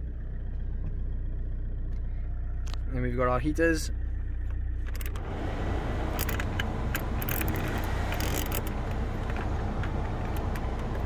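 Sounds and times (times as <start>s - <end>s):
diesel engine idling hum: 0.0s - 11.0s
heater blower fan blowing air: 5.2s - 11.0s
control knobs clicking: 6.1s - 11.0s.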